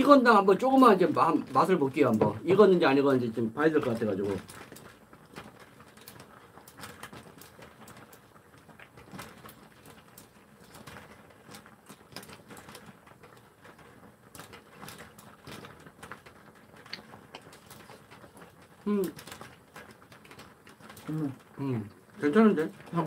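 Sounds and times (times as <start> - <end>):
cook talking: 0.0 - 4.5, 21.1 - 23.0
clams popping and ticking: 0.8 - 23.0.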